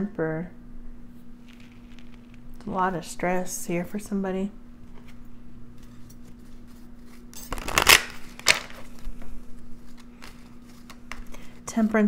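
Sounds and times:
faint steady hum: 0:00.0 - 0:12.0
cards shuffling: 0:01.4 - 0:02.4, 0:05.8 - 0:11.6.

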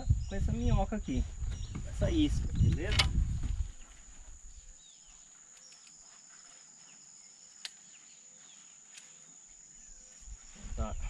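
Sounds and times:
faint bird chirps: 0:00.0 - 0:11.0
insect drone: 0:00.0 - 0:11.0
sharp click: 0:02.7 - 0:03.2.

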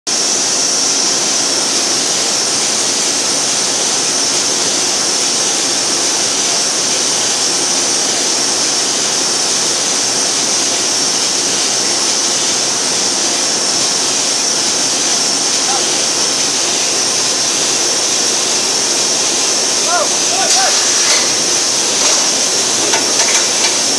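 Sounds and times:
high machinery hiss: 0:00.1 - 0:23.9
paper machine roaring: 0:14.2 - 0:23.9.

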